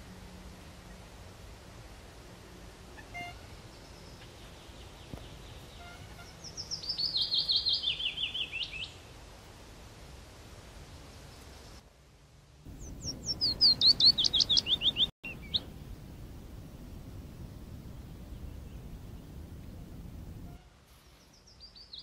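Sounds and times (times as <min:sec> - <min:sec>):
bird singing: 0:03.0 - 0:09.1, 0:12.7 - 0:15.8, 0:17.8 - 0:22.0
low steady hum: 0:09.0 - 0:21.6.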